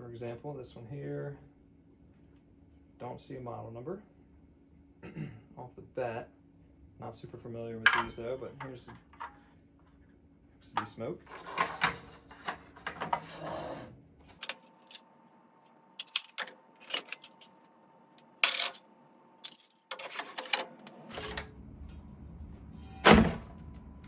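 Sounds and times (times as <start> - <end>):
plastic devices clicking and clattering: 11.3 - 13.3, 16.0 - 17.5.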